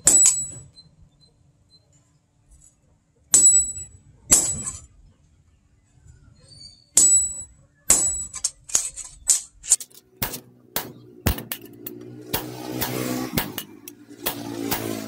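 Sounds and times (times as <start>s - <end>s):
sledgehammer clanging on steel: 0.0s - 0.7s, 3.4s - 4.9s, 7.0s - 12.0s.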